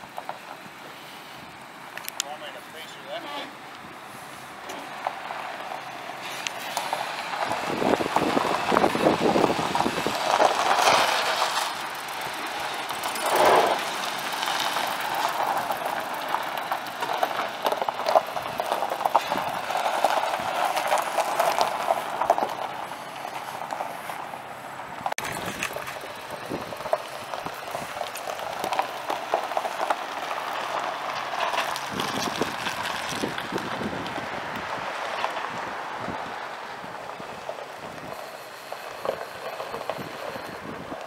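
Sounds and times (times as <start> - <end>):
pickup truck engine running: 3.6 - 34.6.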